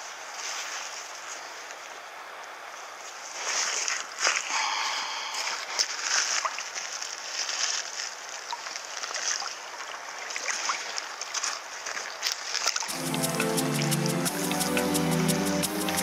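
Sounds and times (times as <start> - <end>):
river water lapping: 3.4 - 16.0
ticks of water: 5.8 - 16.0
music: 12.9 - 16.0.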